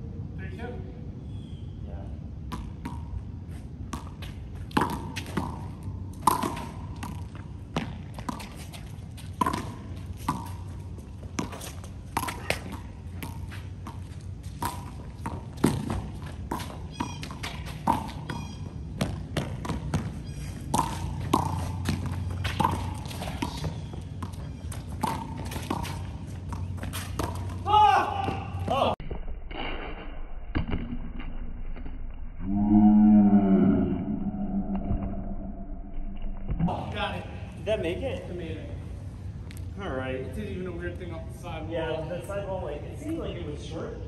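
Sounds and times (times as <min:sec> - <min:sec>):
rubber ball hitting wall and court: 0:03.9 - 0:08.5, 0:12.2 - 0:18.4, 0:19.0 - 0:29.0.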